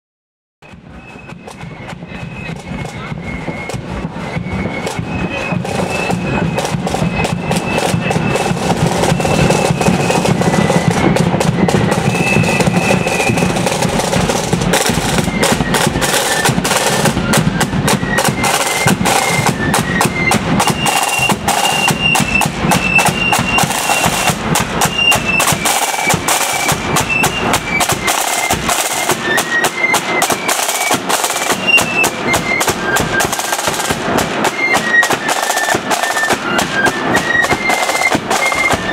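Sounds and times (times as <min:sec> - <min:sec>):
bass drum: 0:00.6 - 0:30.4
flutes playing high melody: 0:00.6 - 0:38.9
side drums beating: 0:00.6 - 0:38.9.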